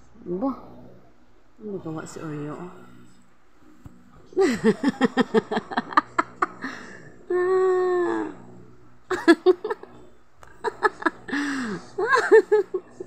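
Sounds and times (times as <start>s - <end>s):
person giggling: 4.4s - 8.3s, 9.1s - 13.0s.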